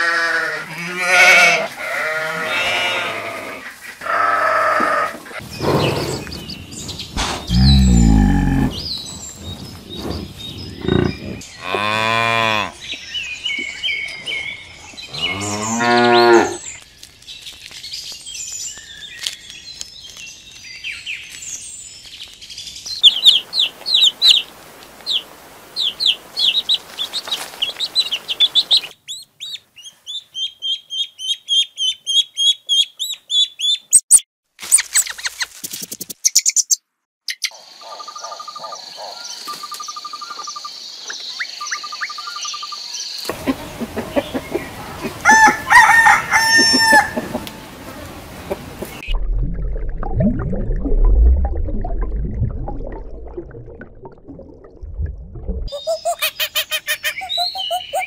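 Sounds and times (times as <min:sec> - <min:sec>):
water buffalo lowing: 0:07.2 - 0:12.7
chicks peeping: 0:43.2 - 0:47.7.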